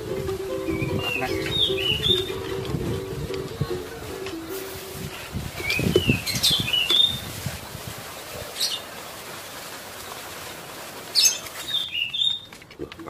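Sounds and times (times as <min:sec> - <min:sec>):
bird chirping: 0:00.6 - 0:02.6, 0:05.6 - 0:07.2, 0:11.1 - 0:13.0
bird flapping wings: 0:02.0 - 0:13.0.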